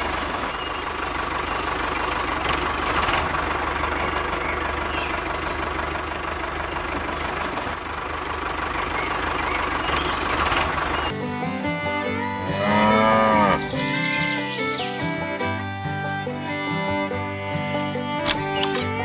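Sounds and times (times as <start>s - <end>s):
toy tractor engine drone: 18.2s - 19.0s.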